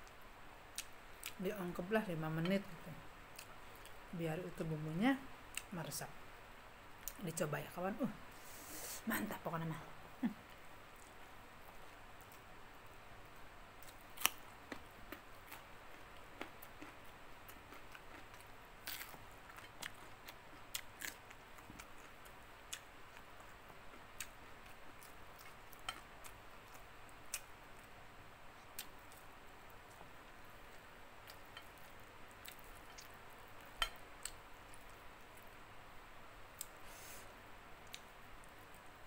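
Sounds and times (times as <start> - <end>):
carrot crunches: 18.1 - 20.0.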